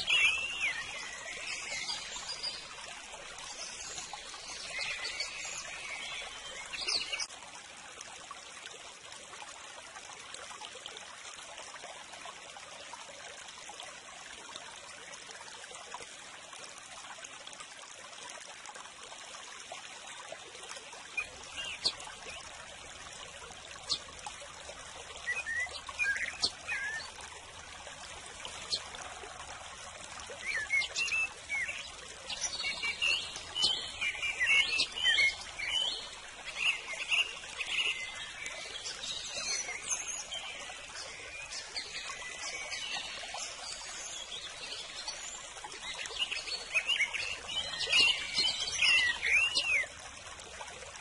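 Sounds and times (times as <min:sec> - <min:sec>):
small birds chirping: 0:00.0 - 0:07.3, 0:21.1 - 0:22.8, 0:23.7 - 0:24.1, 0:25.1 - 0:27.2, 0:30.3 - 0:49.9
stream water rushing: 0:00.0 - 0:51.0.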